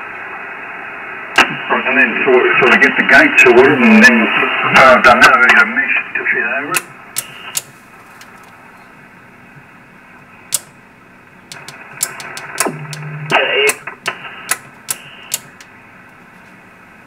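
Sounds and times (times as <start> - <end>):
radio receiver hiss: 0.0 - 17.0
sharp switch clicks: 6.8 - 7.7, 10.5 - 10.8, 11.5 - 13.1, 13.7 - 15.7
radio signal with falling whistle: 11.8 - 15.4
low steady tone: 12.6 - 13.4.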